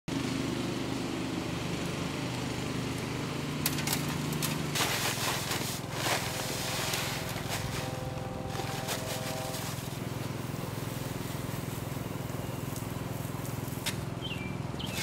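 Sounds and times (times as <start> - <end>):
engine hum: 0.1 - 15.0
paper sack tearing and rustling: 3.8 - 10.2
concrete mix pouring into wheelbarrow: 4.7 - 7.9.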